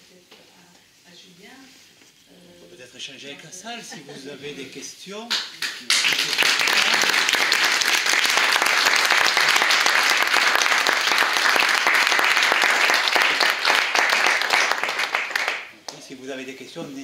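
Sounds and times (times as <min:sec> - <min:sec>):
audience applauding: 0:05.3 - 0:16.1.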